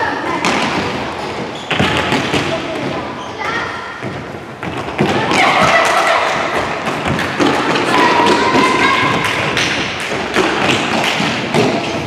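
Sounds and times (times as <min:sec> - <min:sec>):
children's footsteps running: 0:04.0 - 0:12.0
children calling: 0:07.4 - 0:09.6.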